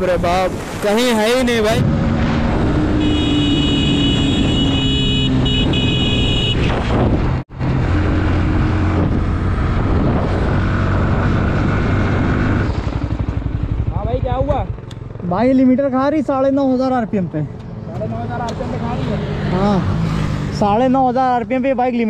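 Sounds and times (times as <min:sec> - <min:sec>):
motorcycle engine running: 0:10.8 - 0:16.0.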